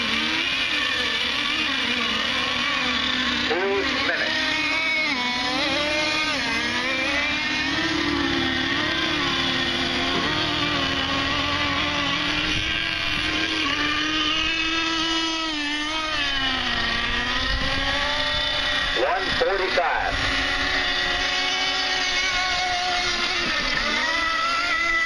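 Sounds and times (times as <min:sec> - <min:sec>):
model boat engines whining: 0:00.0 - 0:25.0.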